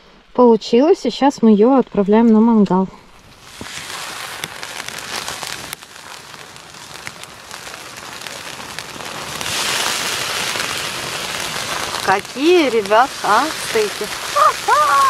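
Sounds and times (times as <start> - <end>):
fish sizzling on a grill: 3.2 - 15.0.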